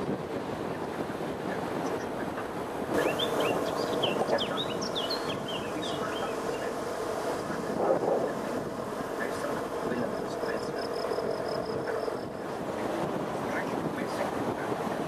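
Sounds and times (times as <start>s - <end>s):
road and wind noise: 0.0s - 15.0s
bird chirping: 3.0s - 7.0s.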